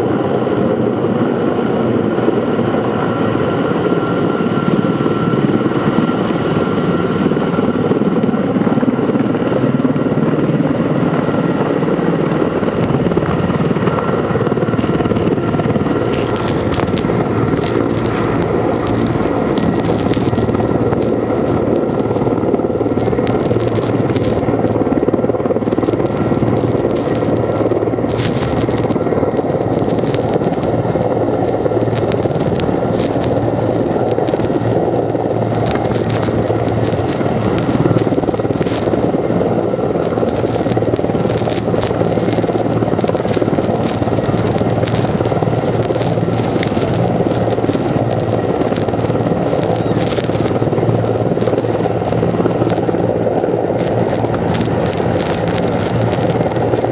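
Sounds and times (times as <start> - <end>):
helicopter rotor and turbine noise: 0.0 - 56.9
light crackles: 12.6 - 56.9.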